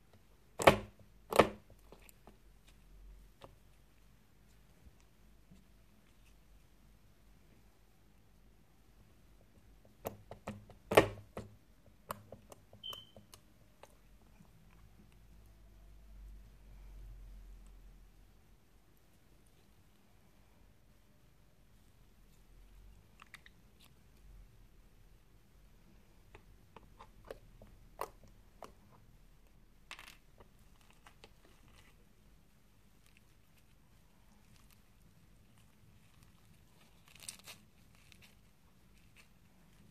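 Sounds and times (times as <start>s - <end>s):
slime crackling: 29.9s - 39.9s.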